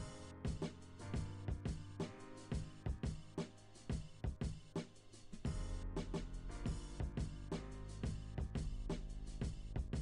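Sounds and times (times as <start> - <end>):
drum kit beat: 0.0 - 10.0.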